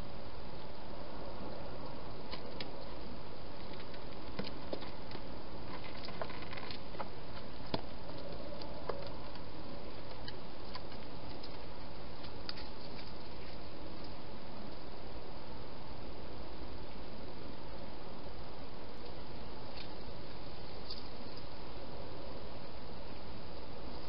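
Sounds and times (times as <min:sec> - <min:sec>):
background hiss: 0:00.0 - 0:24.0
hedgehog clicks and rustles: 0:03.6 - 0:14.2.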